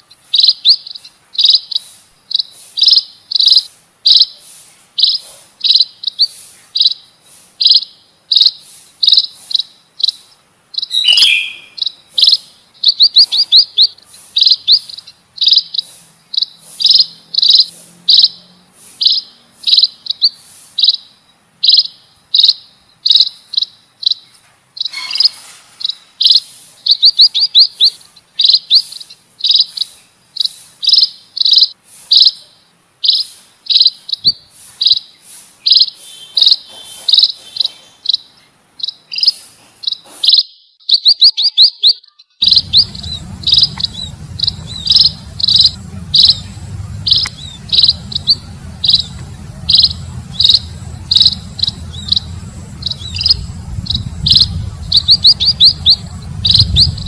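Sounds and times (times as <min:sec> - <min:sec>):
high thin bird chirps: 0:00.0 - 0:57.0
low rumble: 0:42.4 - 0:57.0.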